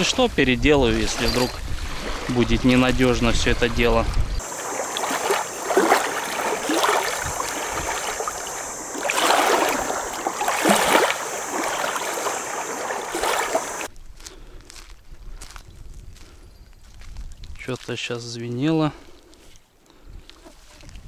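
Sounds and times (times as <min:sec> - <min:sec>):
river water lapping at bank: 0:00.0 - 0:13.9
steady high hiss: 0:04.4 - 0:13.9.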